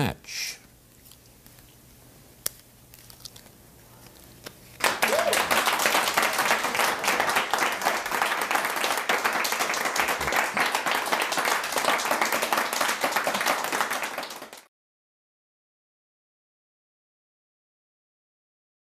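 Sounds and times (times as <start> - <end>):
audience applauding: 4.8 - 14.7.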